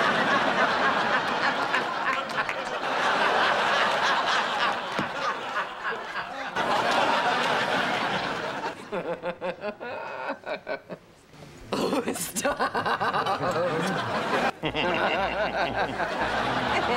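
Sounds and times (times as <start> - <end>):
studio audience laughter: 0.0 - 11.0, 12.1 - 16.9
woman laughing: 11.8 - 16.9.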